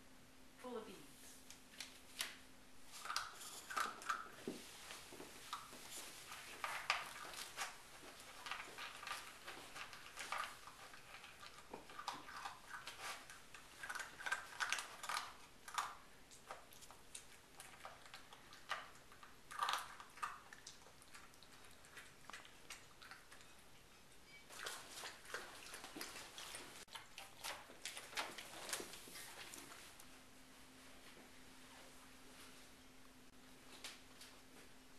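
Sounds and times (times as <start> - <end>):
puppy crunching dry food: 1.8 - 23.8, 24.5 - 30.1.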